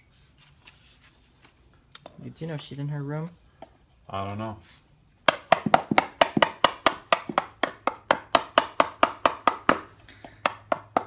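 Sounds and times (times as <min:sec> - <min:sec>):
chisel knocking into wood: 0:05.3 - 0:11.0.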